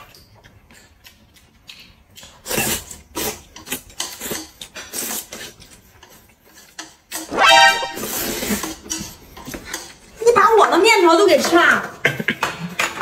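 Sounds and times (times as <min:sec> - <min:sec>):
loud pitched tone: 0:07.3 - 0:08.3.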